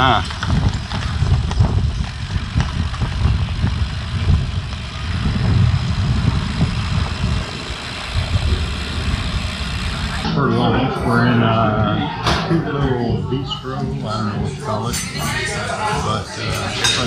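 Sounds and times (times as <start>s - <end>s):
wind buffeting microphone: 0.0s - 11.2s.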